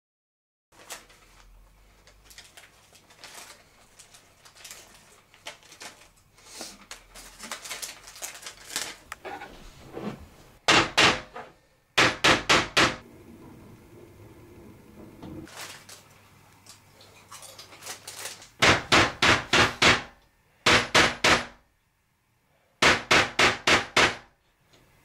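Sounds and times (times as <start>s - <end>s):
hammer driving nail into wood: 10.7s - 11.3s, 12.0s - 13.0s, 18.6s - 20.1s, 20.7s - 21.6s, 22.8s - 24.3s.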